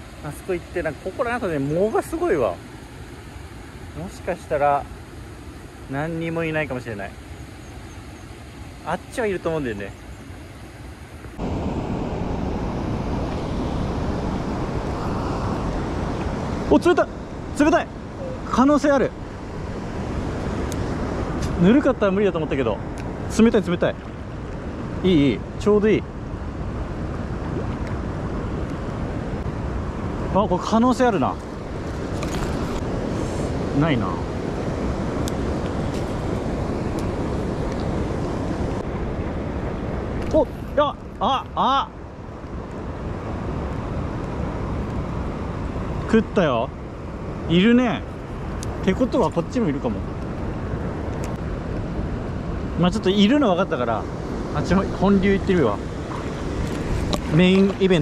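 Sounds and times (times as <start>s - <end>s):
river water rushing: 0.0s - 58.0s
wind buffeting microphone: 11.3s - 41.2s, 42.0s - 58.0s.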